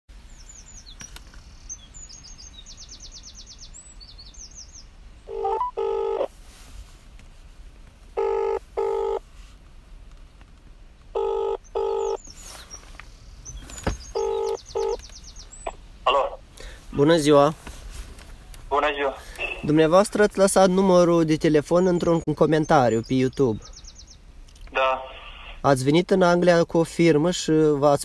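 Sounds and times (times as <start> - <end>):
bird chirps and trills: 0.3 - 5.7, 11.6 - 15.8, 21.7 - 24.3
telephone ringback tone: 5.3 - 6.3, 8.2 - 9.2, 11.2 - 12.2, 14.2 - 15.0.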